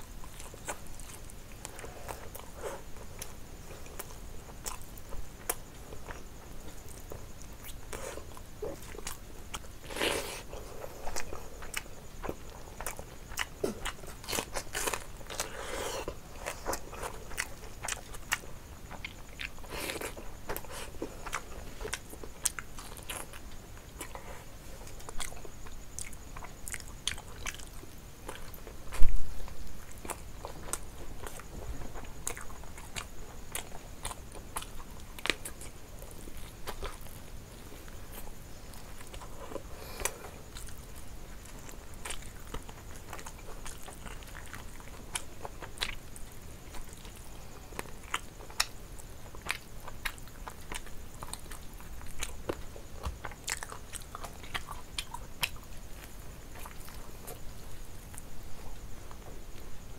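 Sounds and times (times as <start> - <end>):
biting and chewing chicken: 0.1 - 29.1, 29.9 - 59.4.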